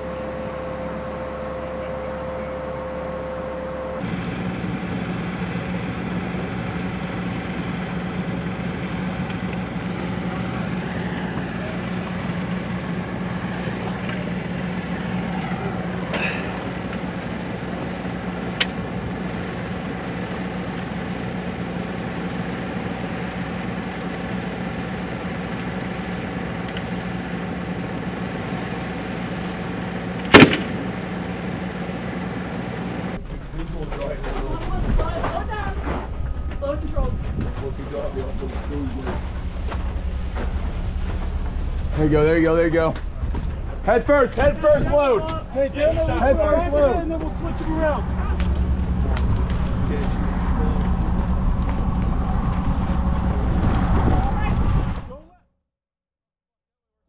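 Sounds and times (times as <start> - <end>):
diesel engine idling: 0.0 - 55.3
sharp loud bang: 30.3 - 30.8.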